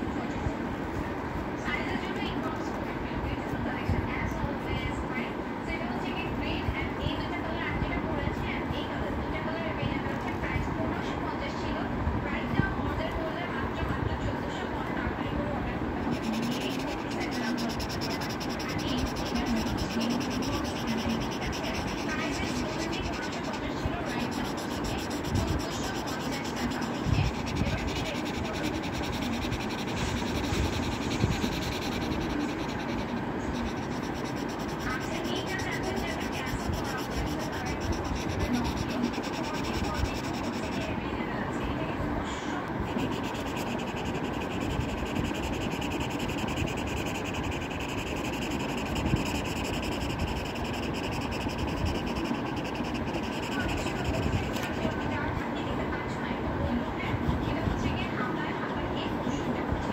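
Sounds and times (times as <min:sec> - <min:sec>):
marker scribbling on paper: 0:16.0 - 0:40.9, 0:42.8 - 0:55.2.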